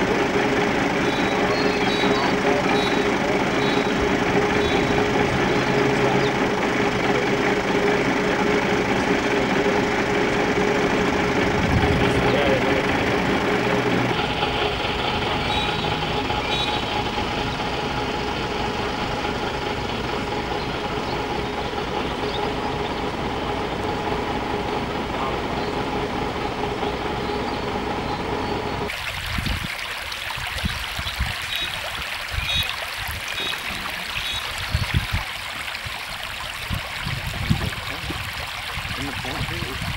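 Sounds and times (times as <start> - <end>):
steady mechanical hum: 0.0 - 29.6
floodwater rushing across road: 0.0 - 39.9.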